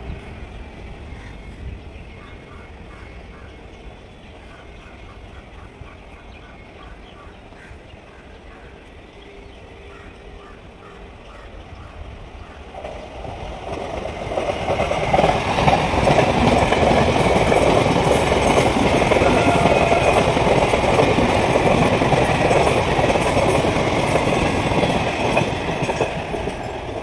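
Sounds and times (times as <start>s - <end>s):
train wheels on rails: 0.0s - 27.0s.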